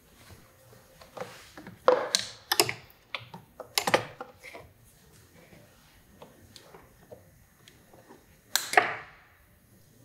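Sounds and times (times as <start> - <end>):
cable ties clicking and snapping: 2.1 - 4.1.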